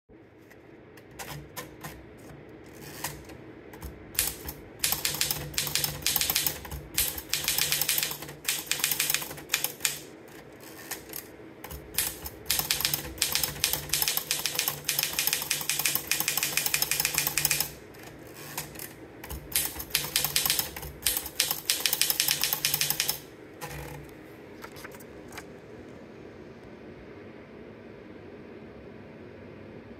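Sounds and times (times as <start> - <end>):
manual typewriter typing: 1.0 - 24.0.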